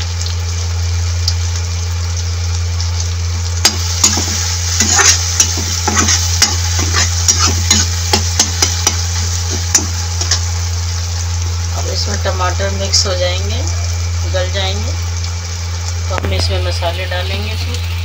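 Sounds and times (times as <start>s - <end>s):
onions sizzling in a pan: 0.0s - 18.0s
steady low hum: 0.0s - 18.0s
utensil scraping and tapping pan: 3.7s - 10.4s.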